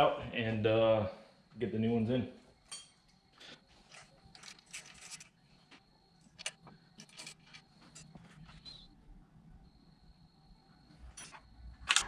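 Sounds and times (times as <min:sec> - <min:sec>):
metal parts and tools clicking: 0:03.8 - 0:05.4, 0:06.3 - 0:08.1.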